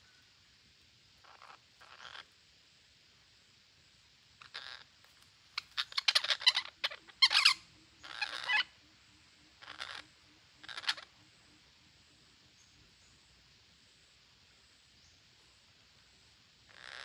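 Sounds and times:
parakeets squawking: 0:01.2 - 0:02.2, 0:04.4 - 0:04.8, 0:05.6 - 0:08.7, 0:09.6 - 0:10.0, 0:10.6 - 0:11.1, 0:16.7 - 0:17.0.

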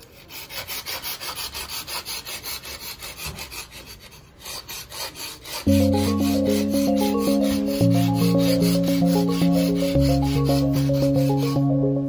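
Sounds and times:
knife rasping through sharpener: 0:00.0 - 0:11.6
music with sustained chord: 0:05.7 - 0:12.0.

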